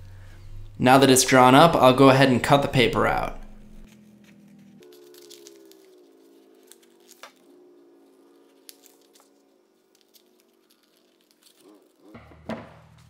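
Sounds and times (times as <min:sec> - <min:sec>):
faint steady hum: 0:00.0 - 0:11.2
scissors snipping paper: 0:03.9 - 0:07.5, 0:08.5 - 0:12.2.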